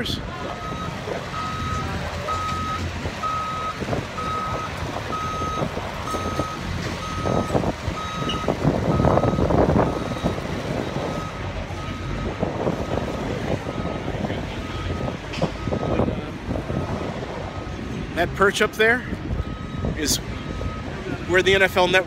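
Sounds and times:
vehicle backup alarm beeping: 0.0 - 18.2, 18.9 - 22.0
low engine rumble: 0.0 - 22.0.

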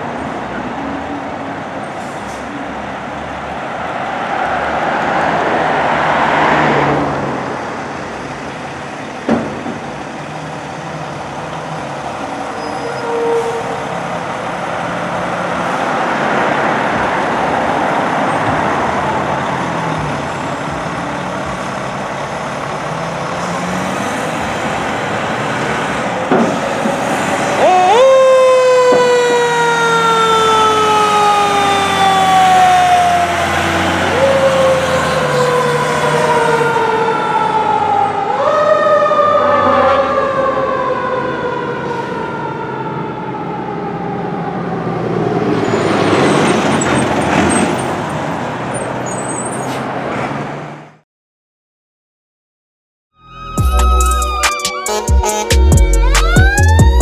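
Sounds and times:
diesel engine running: 18.7 - 27.6.

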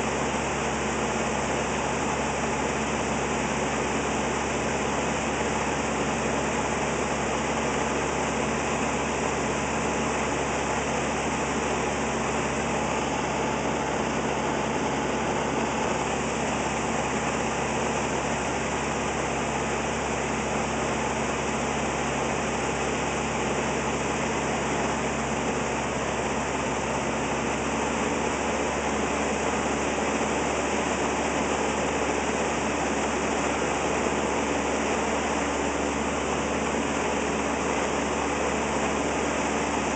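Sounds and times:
aircraft engine and propeller: 0.0 - 39.9.

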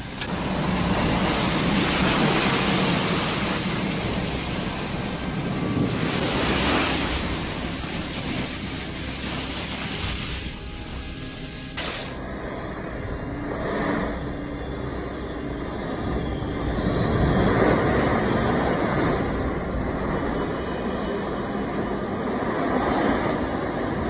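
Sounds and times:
wind blowing across microphone: 0.0 - 10.6
water spraying from road: 0.0 - 12.2.

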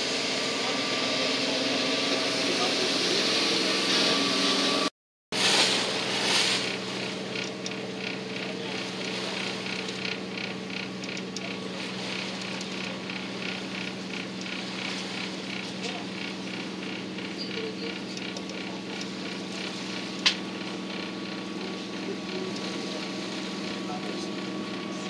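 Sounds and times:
boat engine humming: 0.0 - 25.0
mechanical ticking: 7.2 - 22.7.

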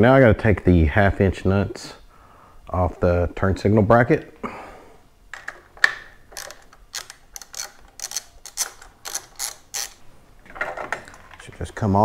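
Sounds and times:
socket ratchet wrench clicking: 6.3 - 10.0.

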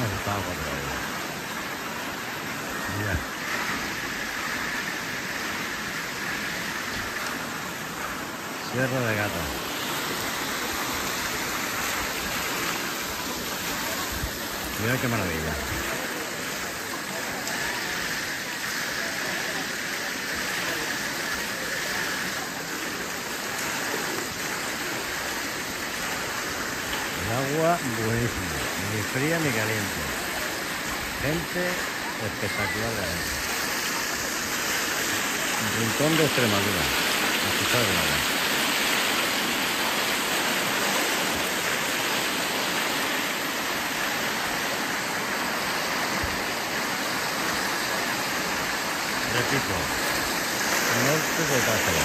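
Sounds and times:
river water rushing: 0.0 - 52.0.

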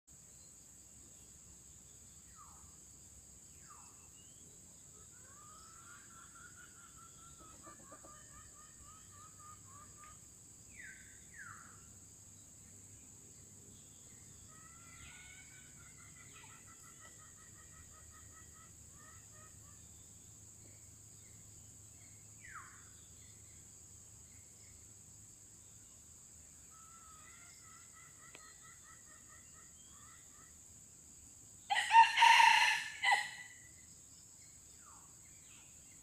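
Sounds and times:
rooster crowing: 31.7 - 33.6.

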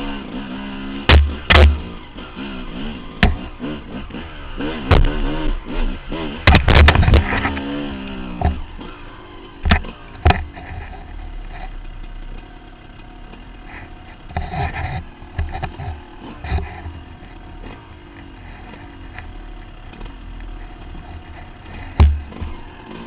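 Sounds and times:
dirt bike engine revving: 0.0 - 23.0
bike knocking on rock: 1.1 - 1.9, 3.2 - 3.5, 4.9 - 5.4, 6.5 - 7.6, 21.7 - 22.6.

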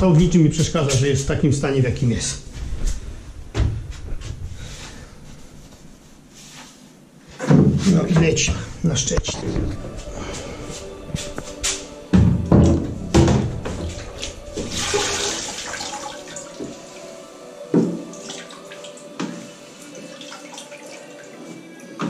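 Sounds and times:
water sloshing and splashing: 11.3 - 17.2, 17.8 - 22.0.

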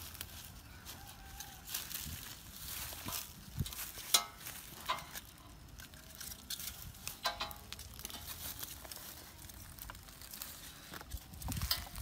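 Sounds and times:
metal auger bit clinking: 3.6 - 8.4.

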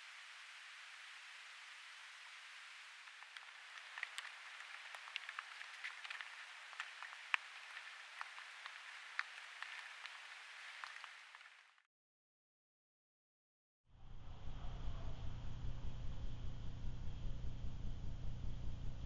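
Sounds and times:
sharp ticks and crackles: 0.0 - 11.7
microphone hiss: 0.0 - 11.8.

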